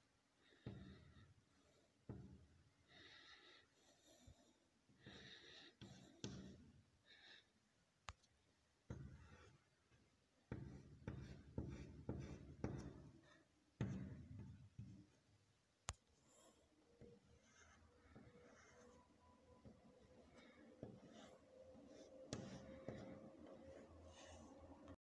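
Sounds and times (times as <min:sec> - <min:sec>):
chalk tapping: 0:00.4 - 0:01.2, 0:05.0 - 0:06.7, 0:08.9 - 0:09.6, 0:10.5 - 0:15.3, 0:15.9 - 0:25.0
chalk scratching on blackboard: 0:10.5 - 0:15.2, 0:17.0 - 0:25.0.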